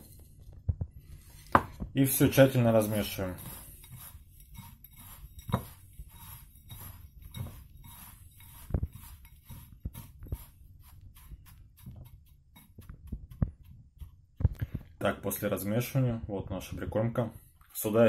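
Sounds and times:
rustling swishes of crumbs: 0.0s - 15.0s.

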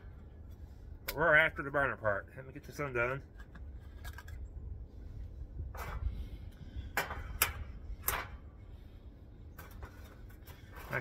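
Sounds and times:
metallic clicks and scrapes: 3.2s - 4.5s
wind rumble on microphone: 3.3s - 10.8s.

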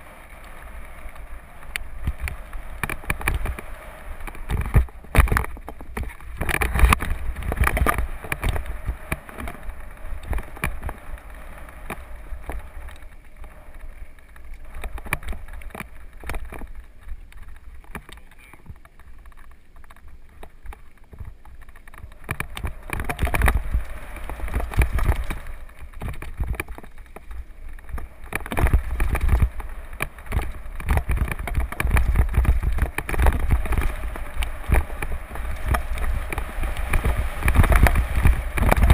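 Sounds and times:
tyres on dirt trail: 0.0s - 38.9s
bike knocks and rattles: 2.0s - 3.6s, 4.2s - 13.0s, 17.8s - 38.9s
wind on microphone: 21.9s - 26.9s, 27.5s - 38.9s.

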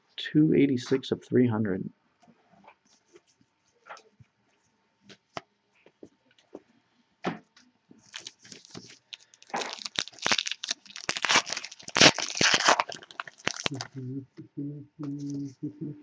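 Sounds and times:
wrapper tearing and crinkling: 8.1s - 13.9s.

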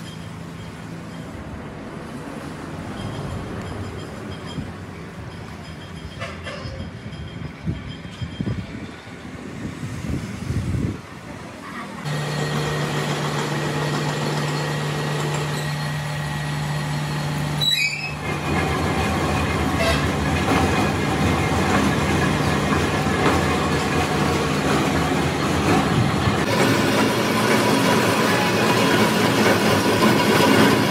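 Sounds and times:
lathe motor hum: 12.1s - 17.6s, 18.2s - 30.9s.

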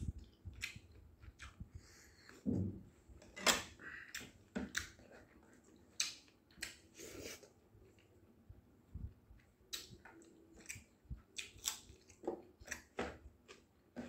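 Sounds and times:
mouth smacks and chewing clicks: 0.2s - 1.7s, 6.0s - 6.8s, 9.4s - 12.9s.

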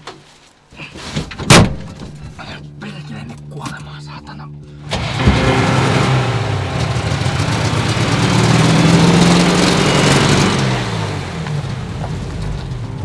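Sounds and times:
truck engine revving: 4.9s - 13.0s.

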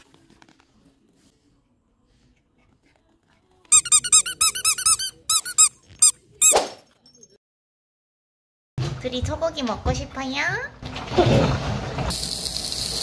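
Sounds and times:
squeaky toy ball squeaking: 3.7s - 6.8s.

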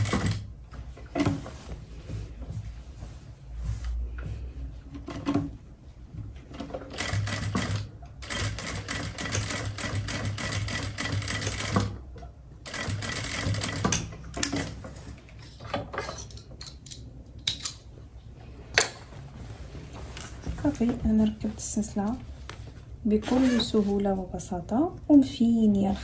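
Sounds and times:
sewing machine stitching: 0.0s - 0.4s.

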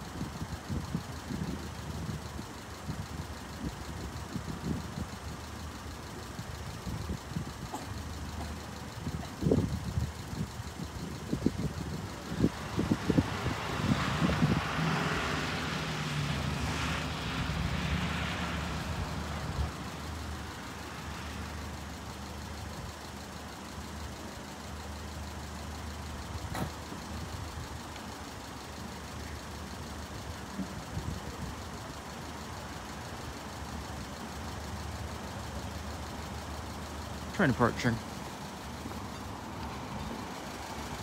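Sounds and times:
vehicle engines idling: 0.0s - 41.0s
vehicle moving past: 12.6s - 21.5s.

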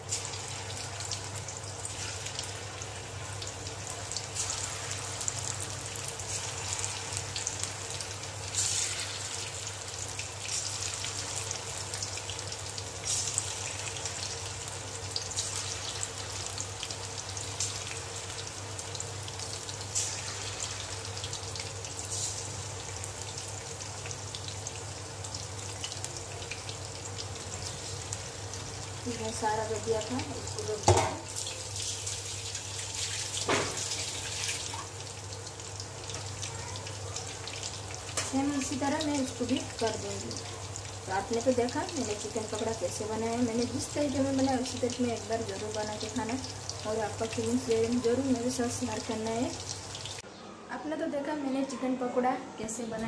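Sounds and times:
deep-frying sizzle in oil: 0.0s - 50.3s.

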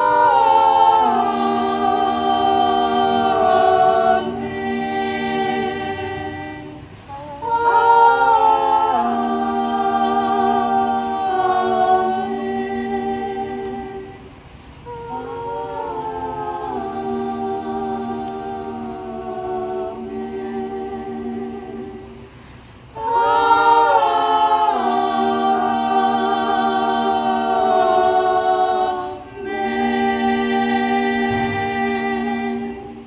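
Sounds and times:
choir singing a cappella: 0.0s - 33.0s
breath: 22.3s - 22.9s.

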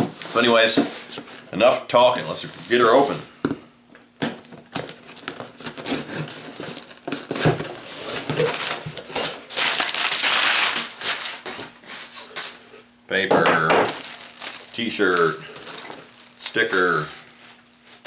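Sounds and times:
paper rustling and crinkling: 4.5s - 12.6s, 13.9s - 18.0s.

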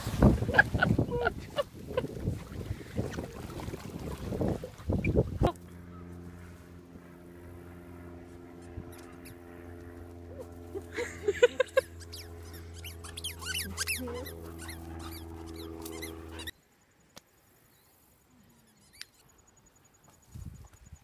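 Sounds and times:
steady low hum: 0.0s - 21.0s
dog whining and yipping: 11.8s - 16.5s.

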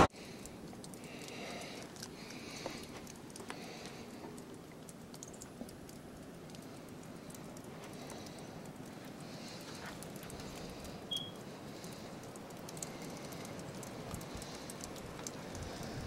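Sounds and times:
steady low hiss: 0.0s - 16.0s
small ticks: 0.2s - 16.0s.

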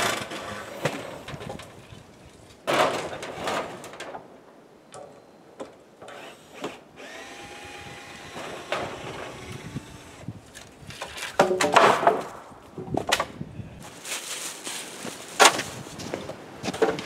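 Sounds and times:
knocks and clatter on wooden boards: 2.6s - 4.2s, 10.9s - 13.4s, 16.7s - 17.0s.

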